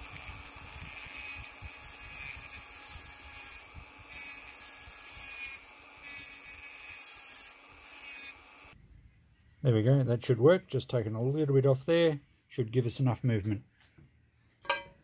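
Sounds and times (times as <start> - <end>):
rotary tool grinding metal: 0.0 - 8.8.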